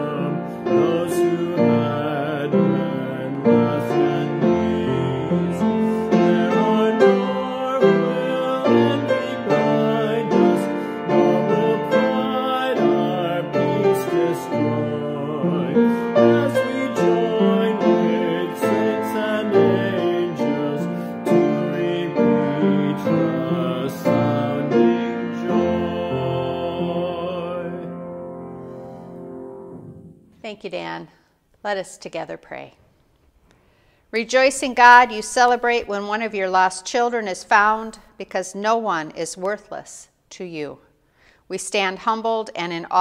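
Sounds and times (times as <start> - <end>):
man singing: 0.0 - 28.1
piano music: 0.0 - 30.5.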